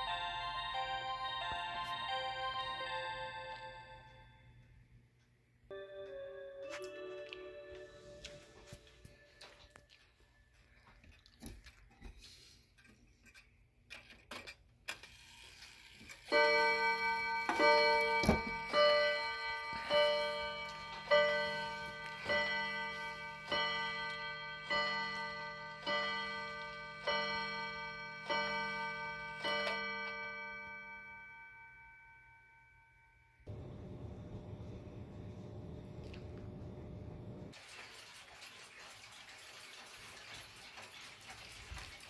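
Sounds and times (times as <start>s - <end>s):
clock striking gong: 16.3s - 31.5s, 33.4s - 35.8s.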